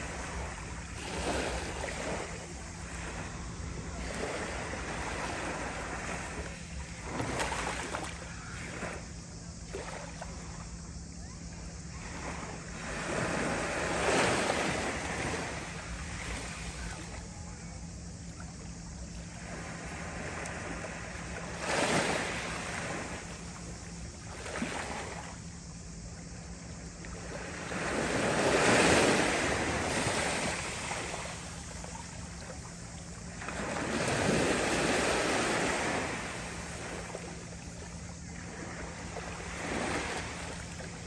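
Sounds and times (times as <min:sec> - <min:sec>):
waves lapping on pebble shore: 0:00.0 - 0:09.0, 0:19.3 - 0:23.4, 0:27.2 - 0:41.0.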